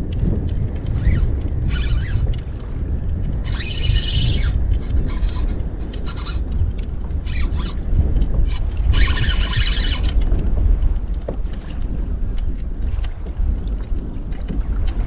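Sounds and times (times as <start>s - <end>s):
wind rumbling on microphone: 0.0s - 15.0s
fishing reel rasping: 0.9s - 2.4s, 3.3s - 10.2s.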